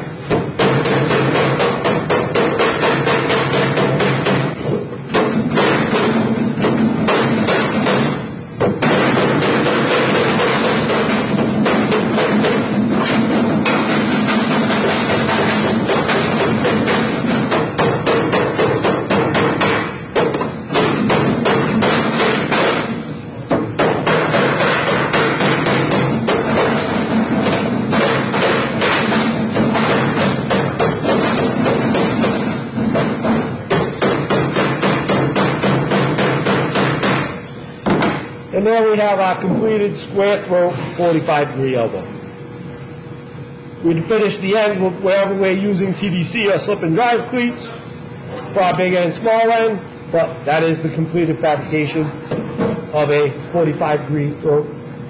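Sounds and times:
hammer on sheet metal: 0.2s - 38.3s.

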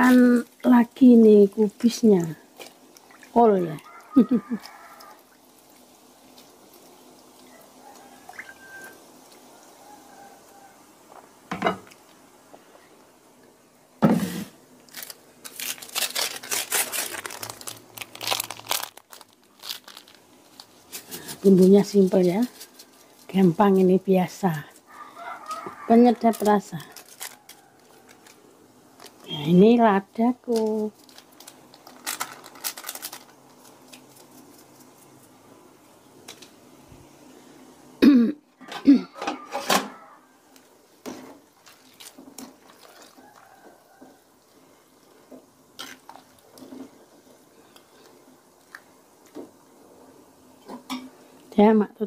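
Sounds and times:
plastic sachet ripping: 14.8s - 23.5s, 24.9s - 28.4s, 29.0s - 29.3s, 30.5s - 35.1s
plastic crinkling: 14.8s - 23.9s, 24.7s - 29.5s, 30.4s - 35.4s, 41.1s - 49.4s.

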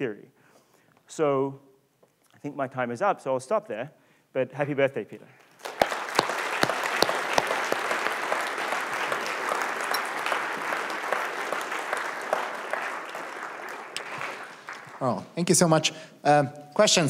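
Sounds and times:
audience applauding: 5.5s - 15.8s.

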